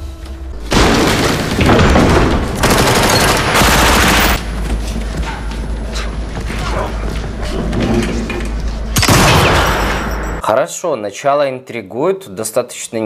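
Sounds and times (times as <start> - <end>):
automatic gunfire bursts: 2.6 - 4.4.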